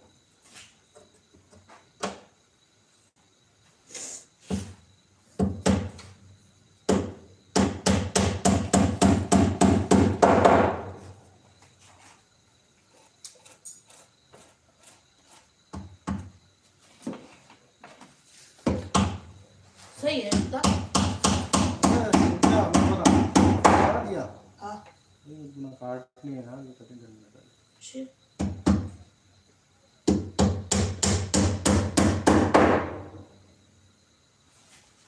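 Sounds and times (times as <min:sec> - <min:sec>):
hammer striking wood: 0:05.4 - 0:06.0, 0:06.9 - 0:11.0, 0:18.6 - 0:19.2, 0:20.3 - 0:24.0, 0:28.4 - 0:28.9, 0:30.0 - 0:33.2.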